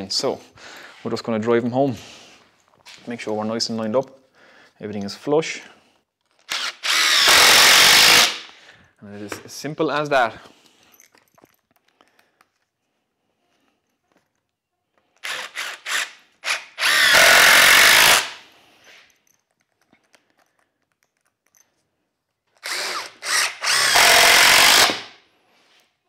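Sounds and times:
impact driver driving screws: 6.4s - 8.5s, 15.2s - 18.4s, 22.6s - 25.2s.

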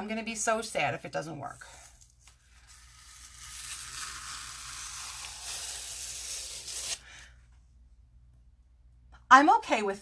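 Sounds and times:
adhesive transfer peeling crackle: 2.0s - 7.0s.

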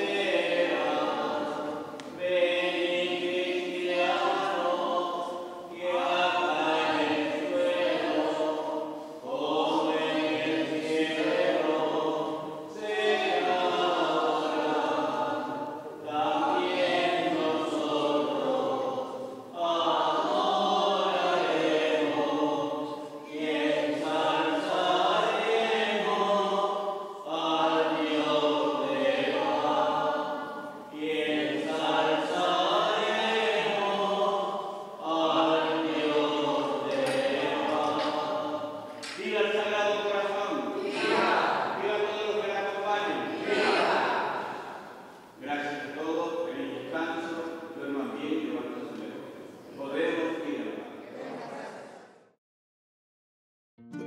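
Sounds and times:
choir singing a hymn: 0.0s - 52.2s.

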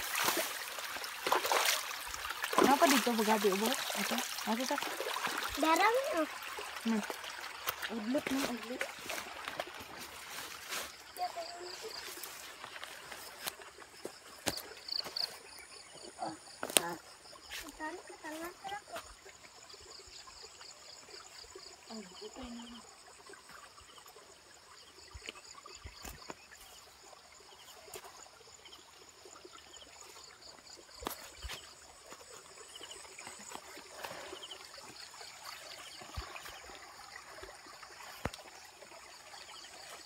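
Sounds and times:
insect chorus with pulsing chirps: 0.0s - 40.0s.

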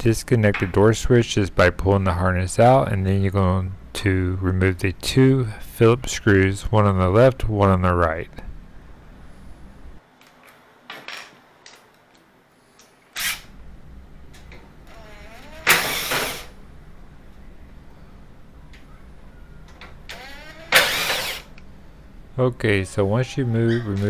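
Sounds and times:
power driver motor whirring: 20.1s - 21.6s.

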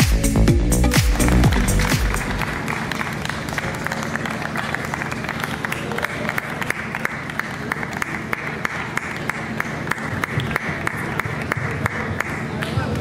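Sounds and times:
people clapping: 0.0s - 13.0s.

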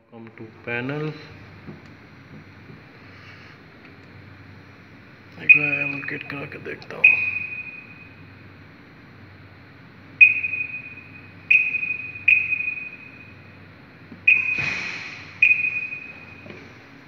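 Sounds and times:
keypad beeps: 5.4s - 6.4s, 7.0s - 8.1s, 10.2s - 13.2s, 14.3s - 14.7s, 15.4s - 16.5s.

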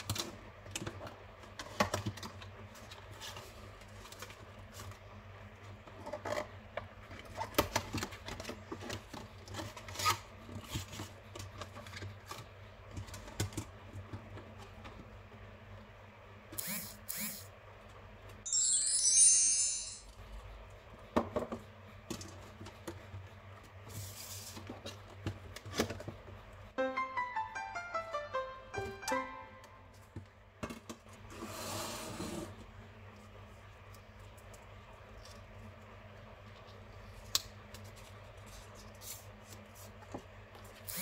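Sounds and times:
high glittering sound effect: 18.5s - 20.2s, 26.8s - 30.0s.

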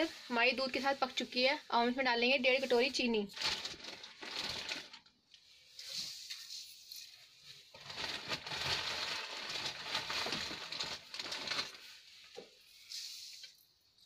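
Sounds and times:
sugar pouring rustle: 7.6s - 14.0s.

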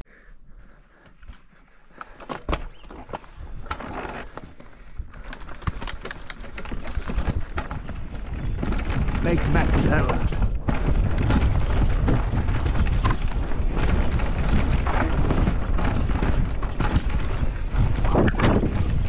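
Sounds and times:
tyres rolling on dirt trail: 0.2s - 19.0s
wheels knocking over bumps: 2.0s - 19.0s
wind on microphone: 6.6s - 19.0s.

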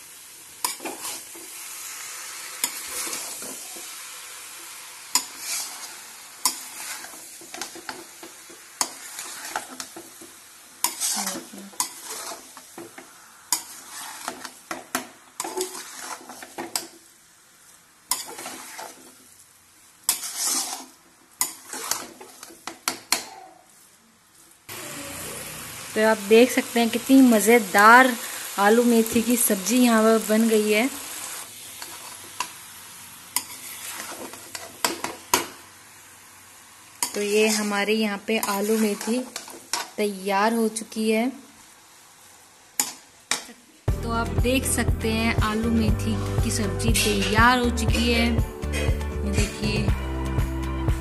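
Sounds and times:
food sizzling: 0.0s - 51.0s
metal spatula scraping a pan: 0.6s - 4.0s, 5.1s - 17.0s, 18.1s - 19.4s, 20.1s - 23.3s, 31.7s - 32.6s, 33.3s - 35.5s, 37.0s - 40.0s, 42.8s - 43.0s, 46.0s - 47.6s.

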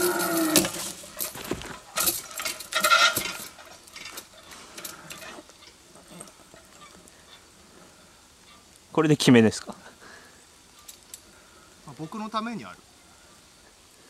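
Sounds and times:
trolley and seat clanking on cable: 0.0s - 7.1s.

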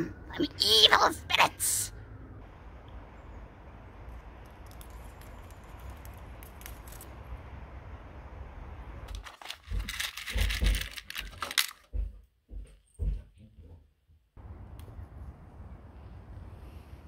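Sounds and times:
metal pins rattling in drawer: 9.2s - 11.8s.

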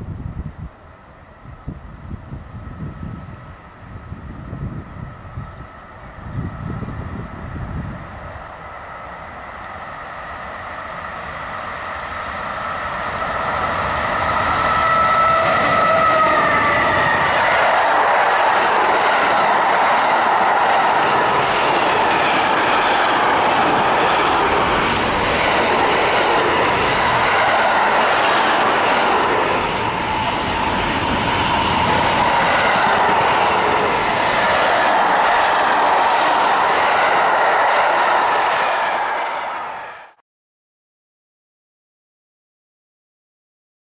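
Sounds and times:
steel train wheels on rails: 0.7s - 40.2s
high wheel squeal: 13.1s - 18.1s, 21.8s - 25.6s, 26.6s - 35.8s.

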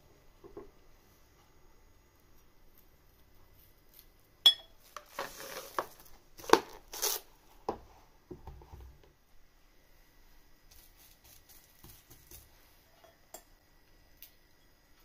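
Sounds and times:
cling film crinkling and tearing: 4.9s - 7.4s.

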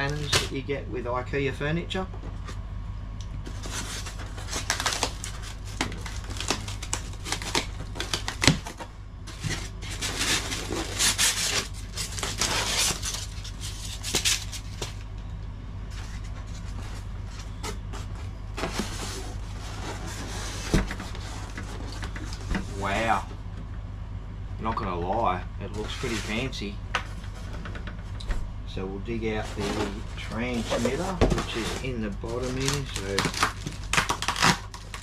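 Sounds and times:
steady low hum: 0.0s - 35.0s
polystyrene foam rubbing and rustling: 9.4s - 14.7s, 25.8s - 26.6s, 29.3s - 35.0s.

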